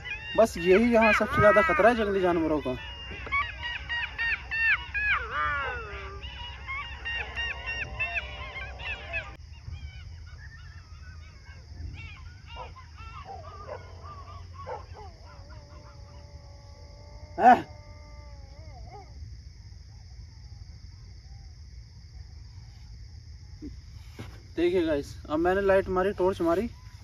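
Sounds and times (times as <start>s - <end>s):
jackals yelping and wailing: 0.0s - 19.3s.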